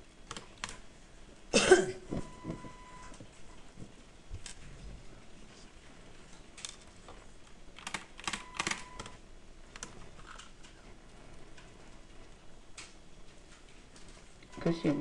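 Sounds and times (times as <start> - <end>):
keyboard typing: 0.2 - 0.8, 7.8 - 10.8.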